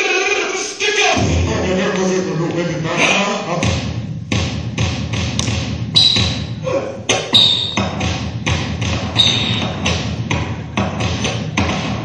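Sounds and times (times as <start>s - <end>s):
backing music with knocking beat: 1.2s - 12.0s
short high squeaks: 6.0s - 6.6s, 7.3s - 7.8s, 9.2s - 9.7s.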